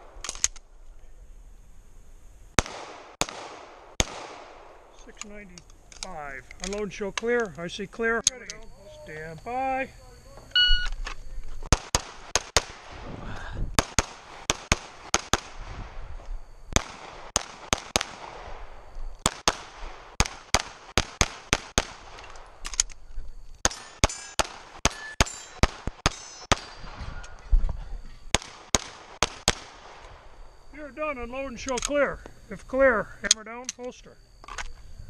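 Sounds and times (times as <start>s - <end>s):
pistol shots: 2.6s - 5.0s, 11.7s - 13.0s, 13.8s - 15.7s, 16.8s - 22.7s, 23.6s - 27.0s, 28.3s - 30.2s.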